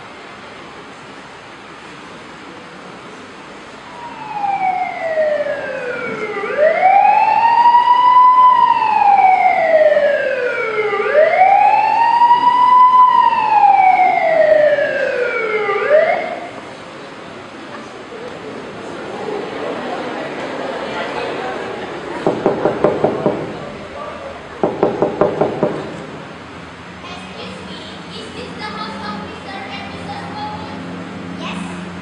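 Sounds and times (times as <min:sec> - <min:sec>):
emergency vehicle siren wailing: 0:03.7 - 0:16.7.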